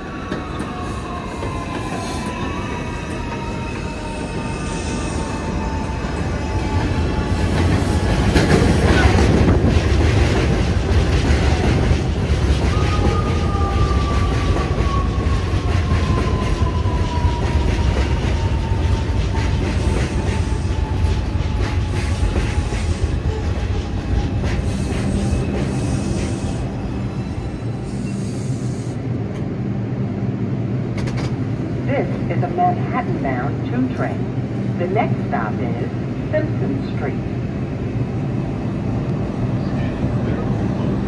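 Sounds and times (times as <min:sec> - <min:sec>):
subway train wheels clacking: 0:00.0 - 0:29.6, 0:30.9 - 0:37.2
train braking whine: 0:24.7 - 0:29.0.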